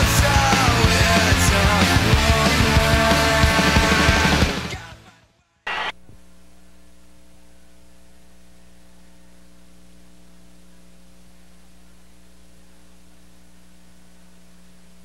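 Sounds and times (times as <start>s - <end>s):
electrical mains hum: 5.7s - 15.0s
tape hiss: 5.7s - 15.0s.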